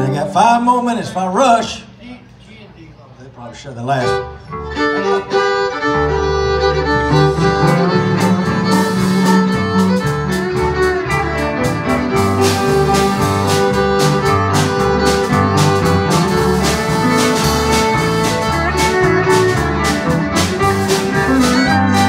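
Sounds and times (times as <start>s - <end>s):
fiddle melody: 0.0s - 0.8s, 3.8s - 22.0s
bass notes: 0.0s - 1.2s, 4.1s - 22.0s
guitar: 0.0s - 1.8s, 4.0s - 22.0s
drums keeping a steady beat: 6.1s - 22.0s.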